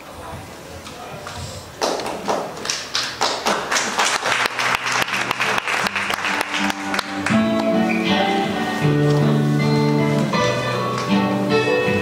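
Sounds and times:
audience applauding: 1.7 - 8.1
music: 4.5 - 12.0.

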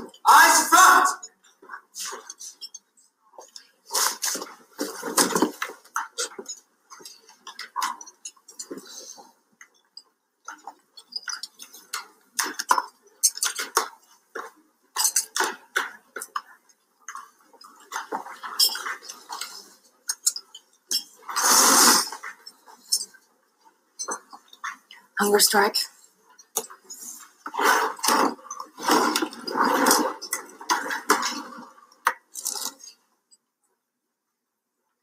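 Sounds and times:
dishes and cutlery clattering: 1.2 - 21.4, 22.1 - 25.1, 26.2 - 33.1.

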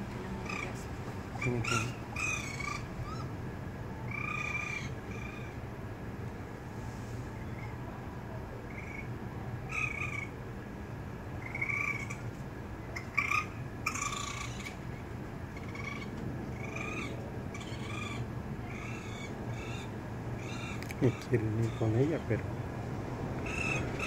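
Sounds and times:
raccoon kits crying: 1.4 - 3.3, 4.1 - 5.6, 11.4 - 12.2, 13.0 - 14.8, 15.6 - 22.2.

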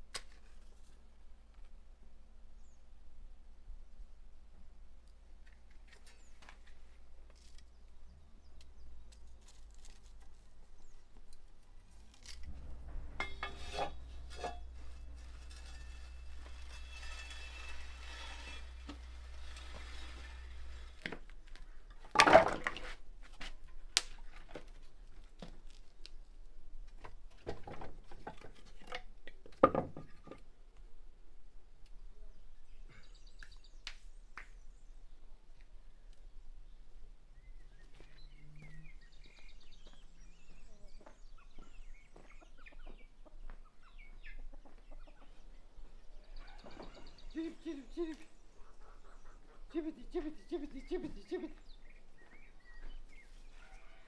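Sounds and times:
firewood and iron tool clattering: 12.0 - 23.0, 27.0 - 30.4, 46.4 - 48.2.

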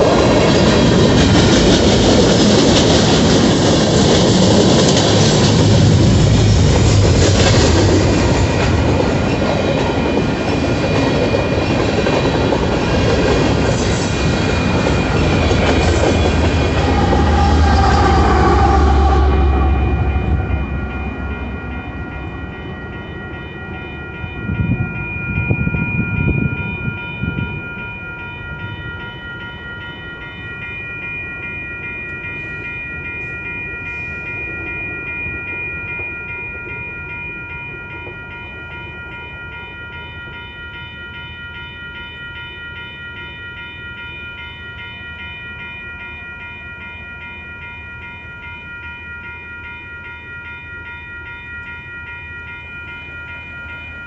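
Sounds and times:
freight train rumble: 0.0 - 40.4
railroad crossing bell ringing: 0.0 - 54.0.

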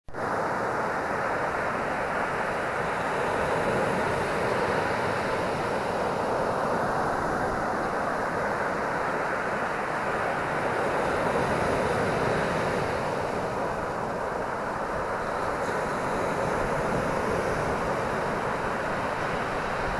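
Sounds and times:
surf breaking on beach: 0.2 - 19.9.

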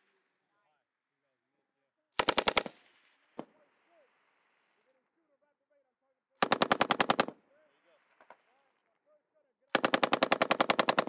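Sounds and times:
machine gun firing bursts: 2.2 - 2.9, 6.4 - 7.4, 9.7 - 11.0.

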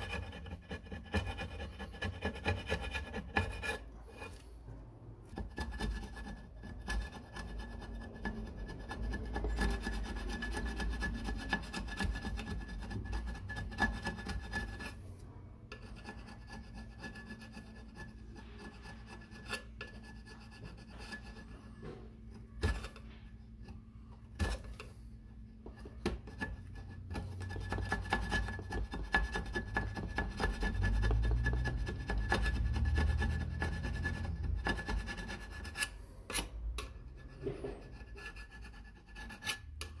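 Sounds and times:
hand scraping metal engine case: 25.6 - 40.0.

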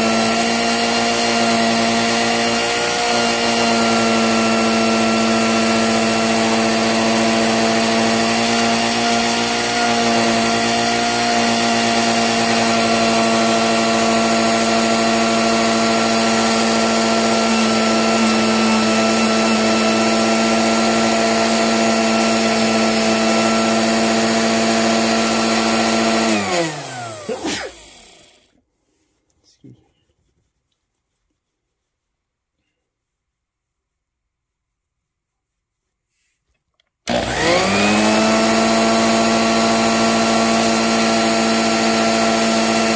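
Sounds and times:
electric motor whining: 0.0 - 28.5, 37.1 - 42.9.

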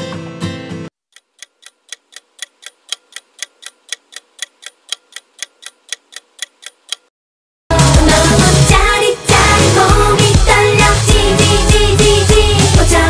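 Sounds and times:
music: 0.0 - 0.9, 7.7 - 13.0
clock ticking: 1.1 - 7.1.

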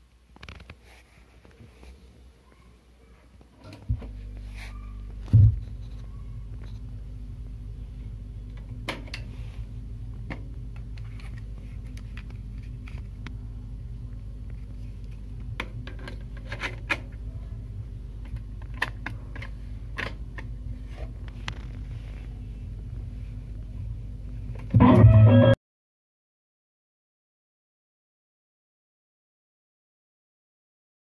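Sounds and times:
low electrical mains hum: 0.0 - 25.6.

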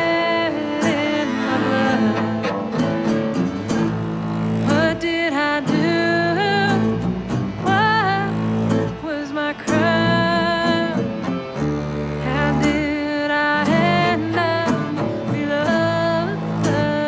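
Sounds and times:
woman singing country-folk song: 0.0 - 2.9, 4.6 - 11.4, 12.2 - 17.0
resonator guitar: 0.0 - 17.0
low bass notes: 1.0 - 13.0.

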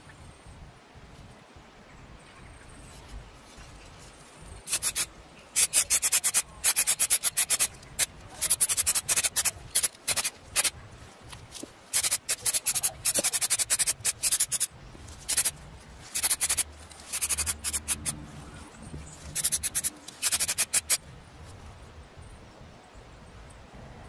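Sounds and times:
spray paint can hissing: 4.6 - 10.8, 11.9 - 18.2, 19.3 - 21.0.

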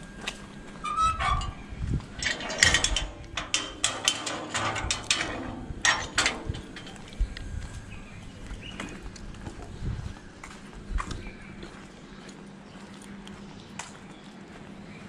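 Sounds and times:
gate squeak: 0.8 - 7.0
gate latch clanking and rattling: 0.9 - 7.1.

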